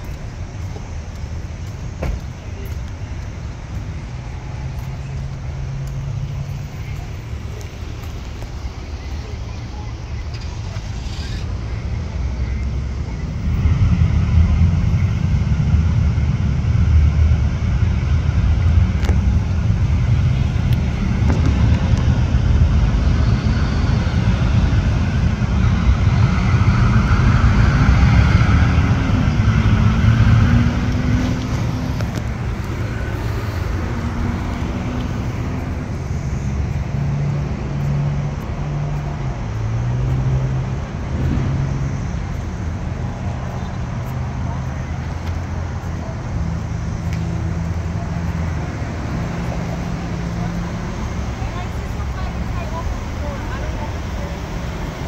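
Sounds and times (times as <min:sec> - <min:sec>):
road traffic rumble: 0:00.0 - 0:55.0.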